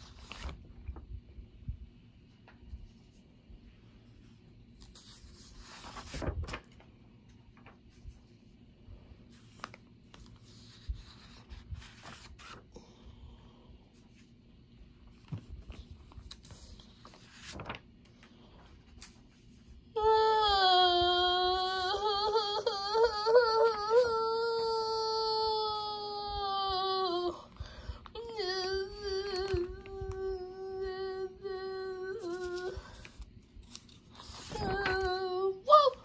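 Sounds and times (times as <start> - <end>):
page turning: 0.0 - 1.1, 4.7 - 8.4, 9.3 - 12.7, 15.0 - 19.6, 32.2 - 35.4
paper rustling: 0.0 - 1.1, 4.1 - 8.5, 9.3 - 12.7, 15.0 - 19.8, 32.1 - 36.0.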